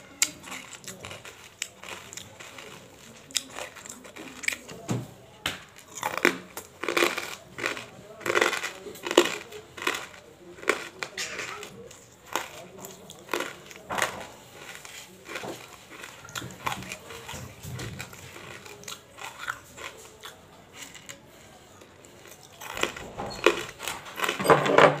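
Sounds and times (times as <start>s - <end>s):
crunching hard crystals: 5.8s - 19.9s.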